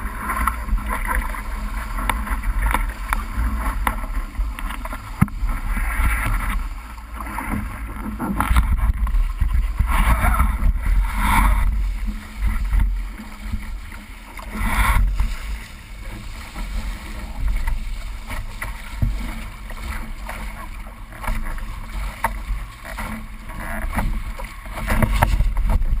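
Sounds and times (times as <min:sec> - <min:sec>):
water rushing and splashing: 0:00.0 - 0:26.0
wind buffeting microphone: 0:07.6 - 0:20.2, 0:24.9 - 0:26.0.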